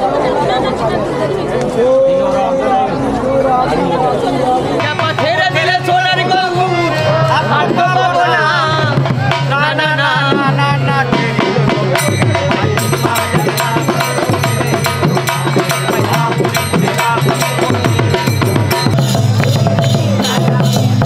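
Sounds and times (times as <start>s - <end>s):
drum and percussion beats: 4.8s - 21.0s.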